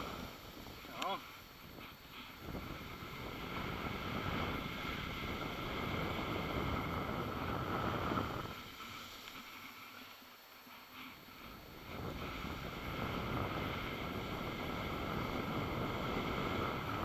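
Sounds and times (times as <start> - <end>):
skis sliding over snow: 0.0 - 17.0
wind on microphone: 1.6 - 8.6, 11.8 - 17.0.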